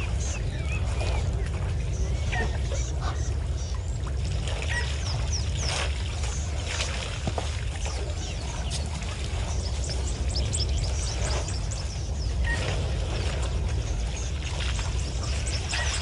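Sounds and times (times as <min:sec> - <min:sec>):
steady low rumble: 0:00.0 - 0:16.0
water splashing and pouring: 0:00.0 - 0:16.0
small birds chirping: 0:04.7 - 0:06.8, 0:07.8 - 0:12.9.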